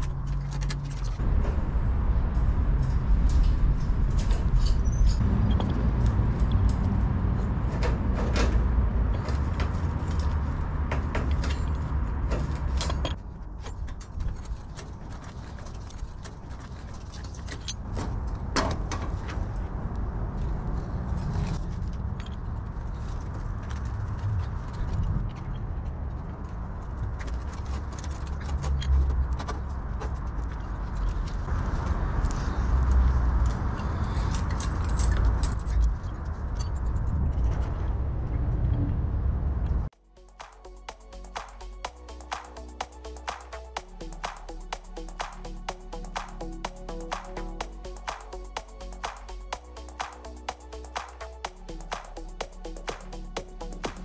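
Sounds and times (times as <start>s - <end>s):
low rumble: 0.0s - 10.9s.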